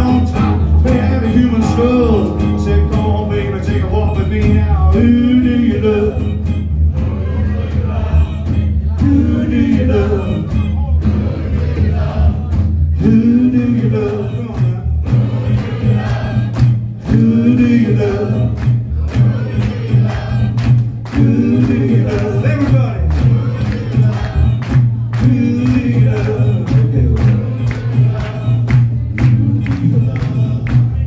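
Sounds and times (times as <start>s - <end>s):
man singing: 0.0s - 6.7s, 7.8s - 11.2s, 12.4s - 15.3s, 17.1s - 19.2s, 21.1s - 23.7s, 24.4s - 28.5s
rock band playing: 0.0s - 30.6s.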